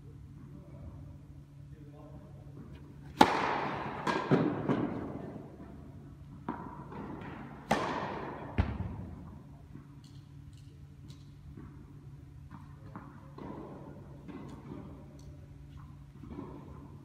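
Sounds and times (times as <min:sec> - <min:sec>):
racket hitting tennis ball: 0:02.6 - 0:09.3
tennis ball bouncing: 0:02.6 - 0:09.8.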